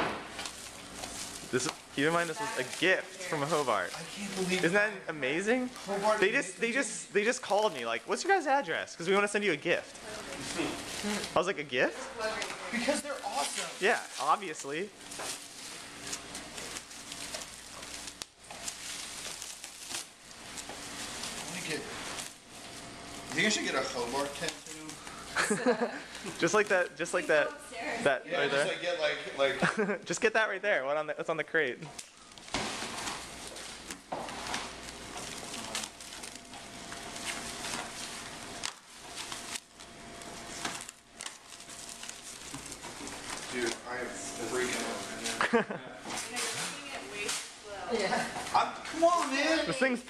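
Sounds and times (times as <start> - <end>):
plastic wrapping crinkling: 0.0 - 27.9, 31.5 - 50.0
scissors cutting plastic: 23.3 - 25.5, 31.9 - 43.8.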